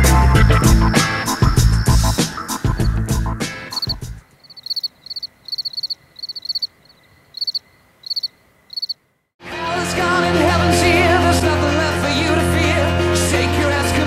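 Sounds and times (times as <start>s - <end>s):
crickets chirping: 0.4s - 9.3s
person singing: 9.4s - 14.0s.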